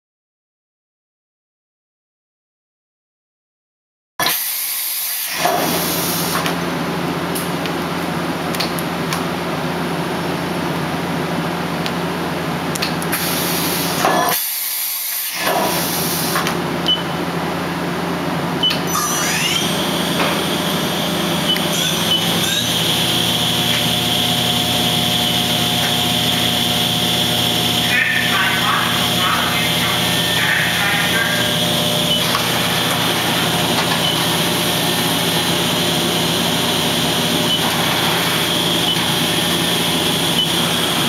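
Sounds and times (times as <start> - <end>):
machine hum with hiss: 4.3 - 7.6, 13.0 - 41.0
spindle whine: 16.0 - 41.0.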